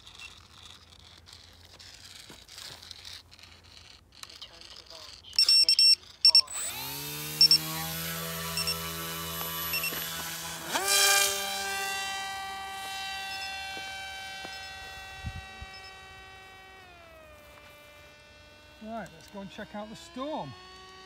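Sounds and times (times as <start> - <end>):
electric motor and propeller whine: 0.0 - 21.0.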